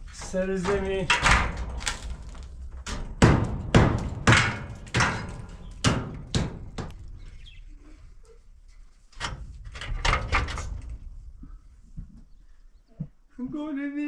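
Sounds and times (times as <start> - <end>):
hammer knocking: 0.2 - 7.1.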